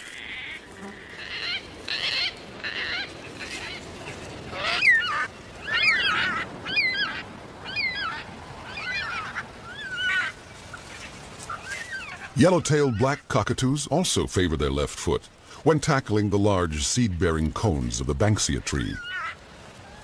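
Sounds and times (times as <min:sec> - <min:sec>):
cockatoos calling: 0:00.3 - 0:13.2, 0:18.9 - 0:20.0.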